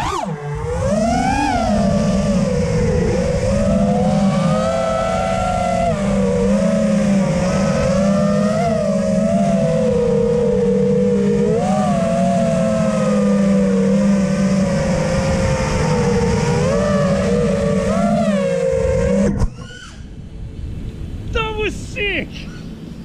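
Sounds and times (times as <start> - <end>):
drone motors whining: 0.0 - 21.0.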